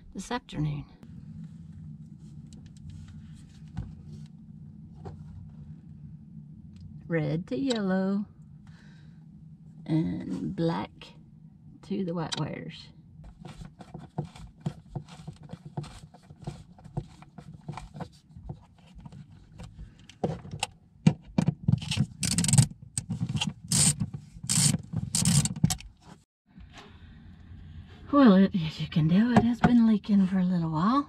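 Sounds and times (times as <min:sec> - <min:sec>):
screwdriver scraping metal: 0:21.8 - 0:25.8.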